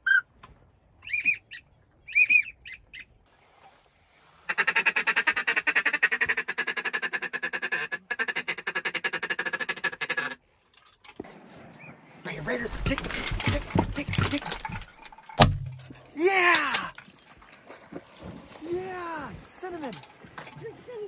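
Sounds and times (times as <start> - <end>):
ducks whistled calls: 0.0 - 0.3, 1.0 - 3.1
chorus of waterfowl calling: 1.0 - 3.1, 4.5 - 10.4.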